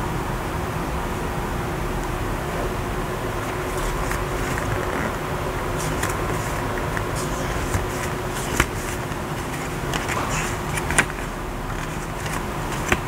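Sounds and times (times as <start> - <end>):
steady background hum: 0.0 - 13.0
cards clicking set down: 3.4 - 13.0
cards rustling: 3.4 - 13.0.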